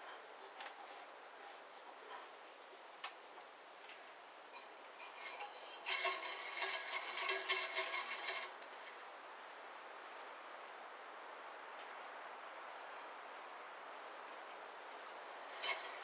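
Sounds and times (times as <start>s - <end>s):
metal parts scraping and rattling: 4.5s - 8.7s, 15.4s - 16.0s.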